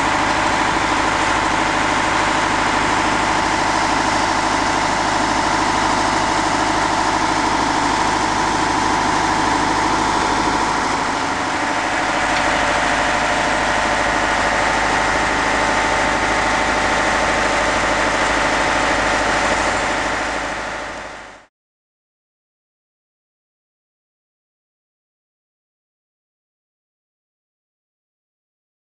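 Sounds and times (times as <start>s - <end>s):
large engine idling: 0.0s - 21.5s
steady high whine: 0.0s - 21.5s.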